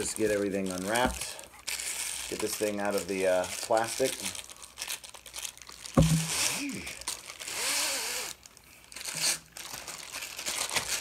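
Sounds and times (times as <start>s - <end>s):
plastic wrapping crinkling and tearing: 0.0s - 7.6s, 8.2s - 11.0s
thump: 6.0s - 6.3s.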